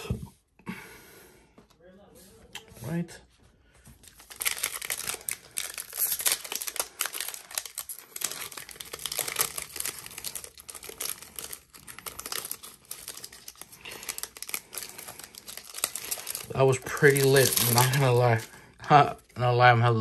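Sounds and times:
wrapper tearing and crinkling: 4.0 - 18.7.

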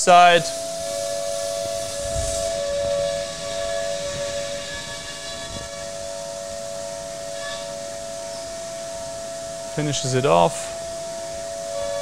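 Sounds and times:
coolant spray hissing: 0.0 - 5.6
milling spindle whining: 0.0 - 12.0.

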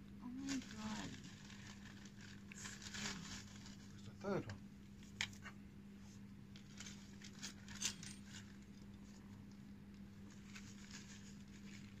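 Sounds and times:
low steady hum: 0.0 - 12.0
dry roots crackling and rustling: 0.4 - 4.1.

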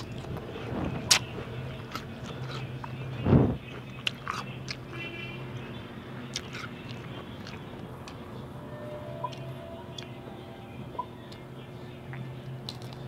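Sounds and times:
chewing food: 0.0 - 5.0, 6.2 - 8.3, 12.1 - 13.0.

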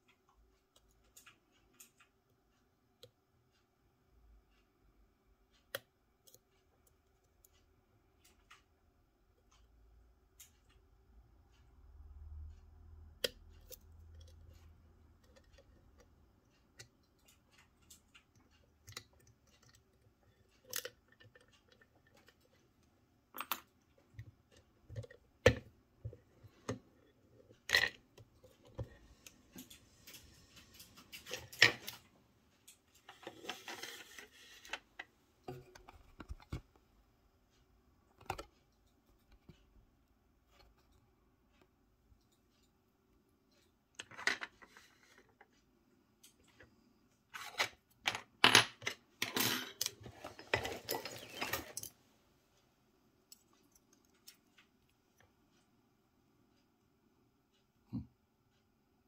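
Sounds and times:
small metal clicks and taps: 12.4 - 36.8.

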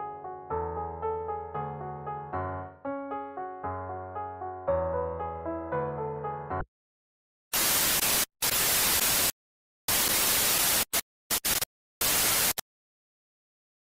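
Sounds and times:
white-noise static bursts: 7.5 - 12.6.

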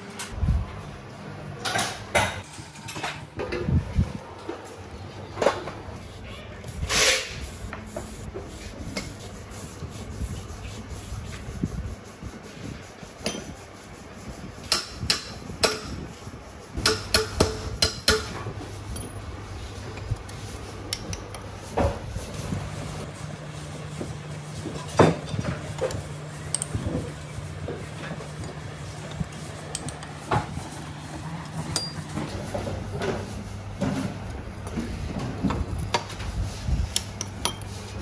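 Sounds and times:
metal tools clinking: 31.7 - 32.2.

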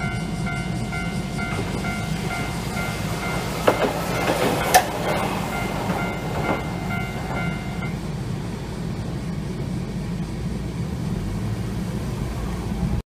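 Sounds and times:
level crossing bell ringing: 0.0 - 8.0
steady low rumble: 0.0 - 13.0.

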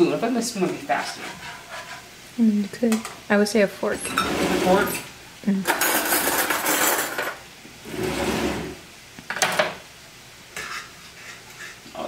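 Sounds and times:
utensils scraping in a skillet: 0.5 - 2.2, 3.9 - 5.1, 5.7 - 8.8, 10.6 - 11.8.

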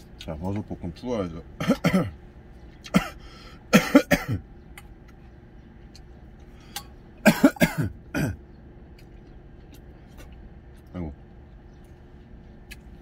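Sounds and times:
man coughing: 1.6 - 2.2, 2.9 - 4.4, 7.2 - 8.4.

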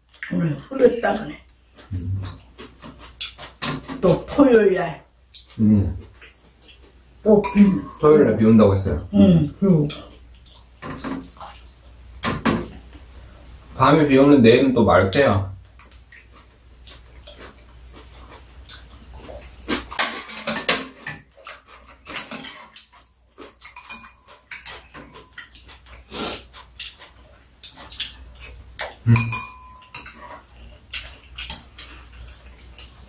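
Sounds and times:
chewing and slurping: 1.0 - 4.4, 9.9 - 12.0, 15.7 - 33.0
spoons clinking on ceramic bowls: 23.6 - 25.5, 29.1 - 30.2.

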